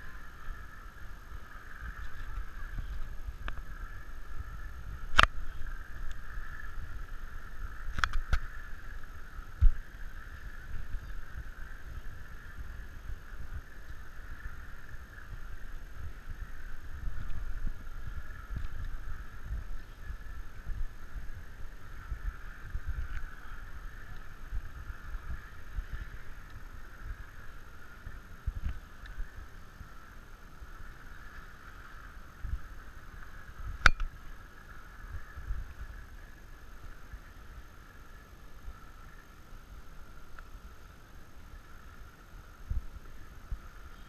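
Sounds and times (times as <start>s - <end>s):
steady high hiss: 0.0s - 44.0s
sharp click: 33.8s - 34.1s.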